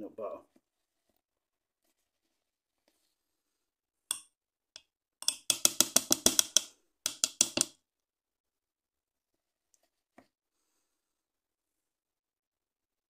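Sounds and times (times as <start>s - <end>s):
wooden spoon knocking metal pot: 5.2s - 7.8s.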